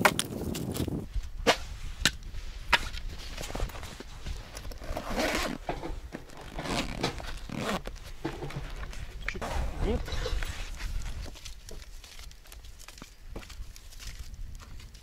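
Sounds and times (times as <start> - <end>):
wooden logs knocking together: 0.0 - 3.1
zipper pulled closed: 4.6 - 8.0.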